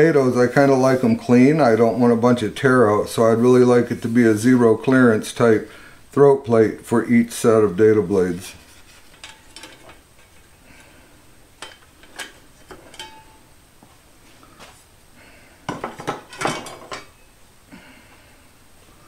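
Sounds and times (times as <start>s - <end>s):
steel blades clinking: 12.8s - 13.4s.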